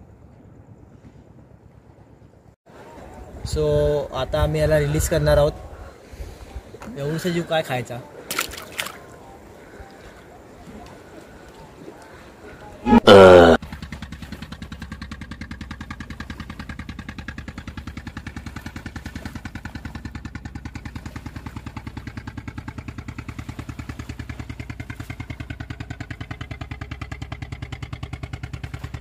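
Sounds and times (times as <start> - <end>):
engine idling: 13.6 - 29.0.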